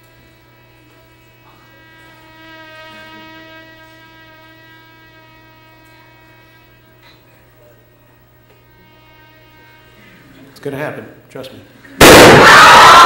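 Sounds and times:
hydrogen flame humming tone: 0.0s - 13.0s.

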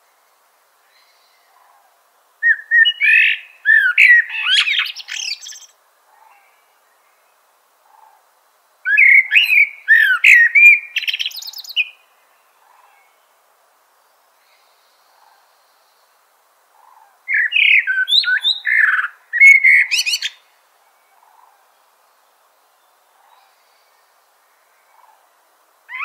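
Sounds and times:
mockingbird singing: 2.4s - 5.7s, 8.9s - 12.0s, 16.8s - 20.4s.

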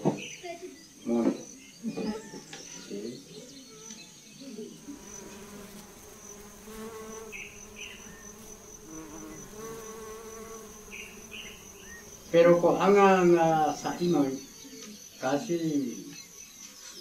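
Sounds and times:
bees buzzing: 4.8s - 16.6s
high insect trill: 4.8s - 17.0s.

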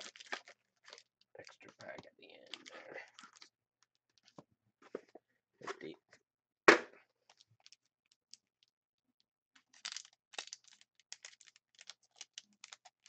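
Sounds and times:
wrapper crinkling and tearing: 0.0s - 3.5s, 9.6s - 13.0s.

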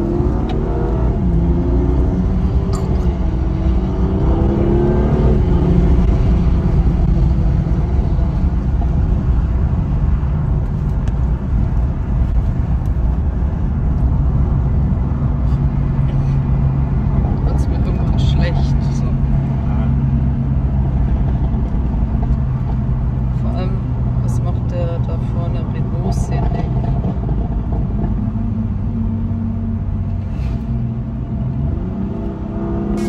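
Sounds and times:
road noise: 0.0s - 33.0s
sports car engine accelerating: 0.0s - 33.0s.

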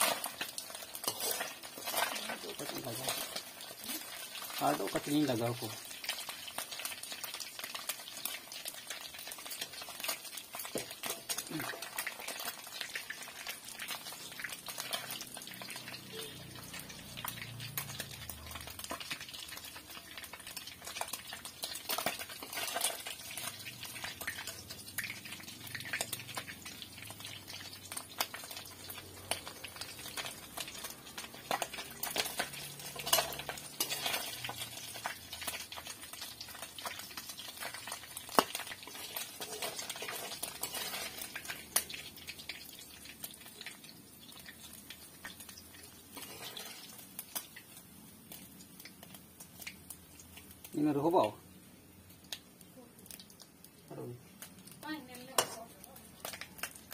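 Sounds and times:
metal skimmer scraping wok: 0.0s - 4.6s, 29.3s - 35.6s, 37.6s - 42.0s, 45.9s - 47.0s
hot oil sizzling: 0.0s - 56.9s.

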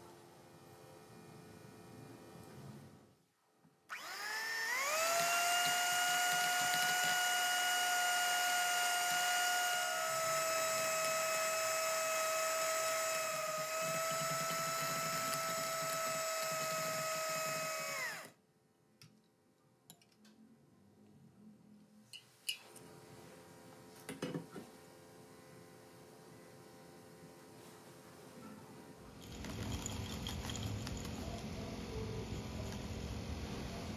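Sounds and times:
electric hand mixer whining: 3.9s - 18.4s.

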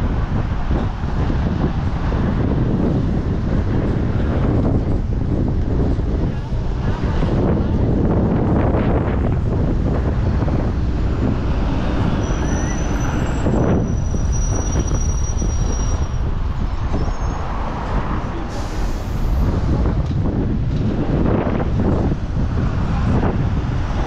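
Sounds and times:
strong wind buffeting microphone: 0.0s - 24.0s
faint high whistle: 12.2s - 13.4s.

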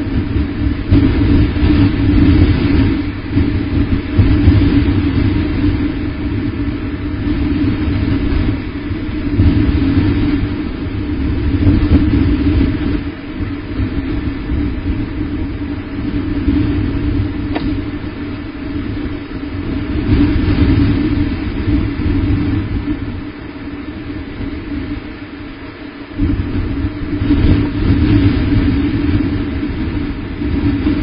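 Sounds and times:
low rumbling noise: 0.0s - 31.0s
sharp click: 17.5s - 17.8s.

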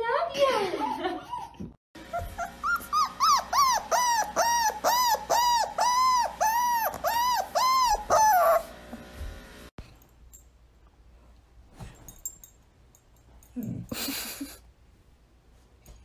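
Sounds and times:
dog whimpering: 0.6s - 8.7s.

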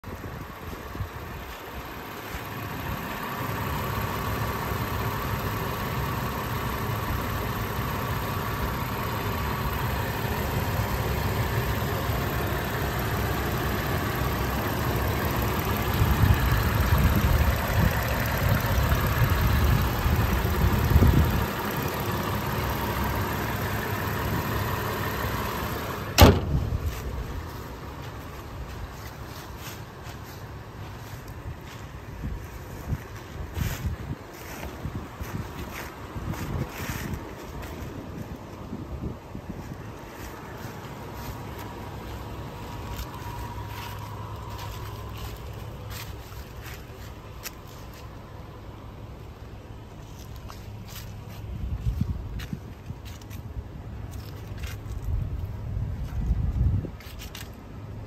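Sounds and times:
car engine idling: 0.0s - 58.0s
car hood slamming: 26.1s - 26.8s.

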